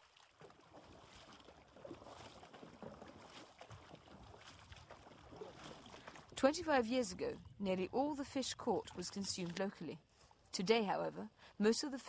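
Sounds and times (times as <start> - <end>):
small knocks and drips: 0.0 - 6.4
water lapping against canoe: 0.0 - 10.5.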